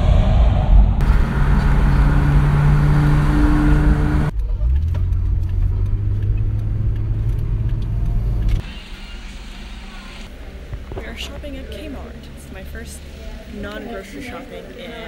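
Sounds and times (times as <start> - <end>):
road and wind noise: 0.0 - 8.7, 10.2 - 15.0
car engine hum: 1.0 - 8.6.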